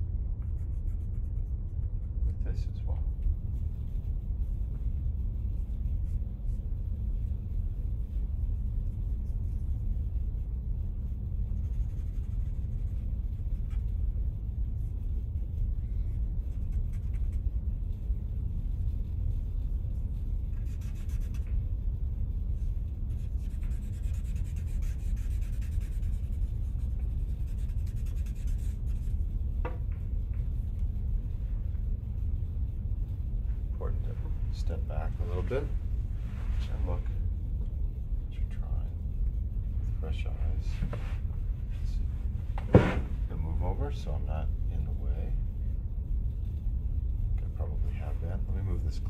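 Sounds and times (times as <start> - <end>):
steady low rumble: 0.0 - 49.0
charcoal scratching on paper: 0.4 - 2.2, 11.1 - 18.0, 18.7 - 21.6, 22.5 - 29.3.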